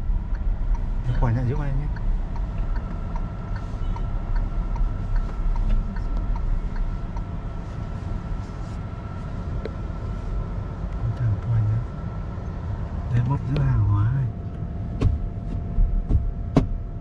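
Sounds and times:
car cabin low rumble: 0:00.0 - 0:17.0
faint whine: 0:00.0 - 0:17.0
light ticks: 0:00.3 - 0:07.4, 0:13.5 - 0:13.7.

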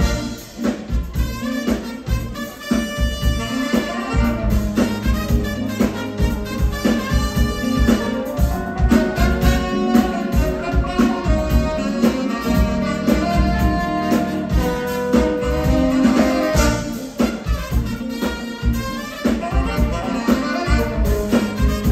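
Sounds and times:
big band playing: 0:00.0 - 0:21.9.

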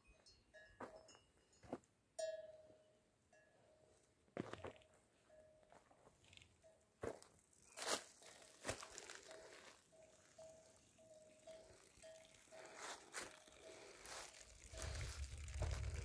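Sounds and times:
footsteps crunching on stony ground: 0:04.4 - 0:05.0, 0:05.7 - 0:10.7, 0:12.6 - 0:16.0.

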